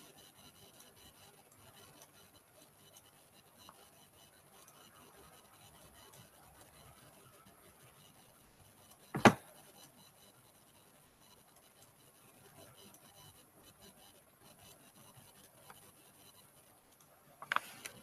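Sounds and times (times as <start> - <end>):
sharp thump: 9.2 - 9.4.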